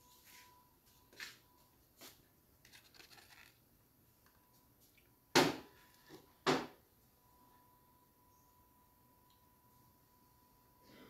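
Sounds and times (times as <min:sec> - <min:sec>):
aluminium foil crinkling: 0:02.6 - 0:03.6.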